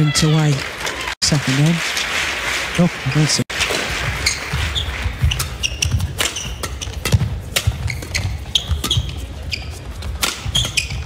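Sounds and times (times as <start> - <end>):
rackets striking shuttlecock: 3.7 - 11.0
shoes squeaking: 4.0 - 11.0.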